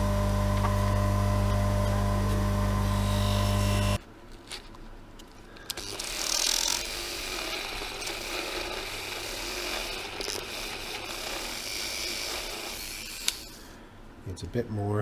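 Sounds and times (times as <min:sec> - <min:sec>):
rotary tool grinding metal: 0:05.8 - 0:13.7.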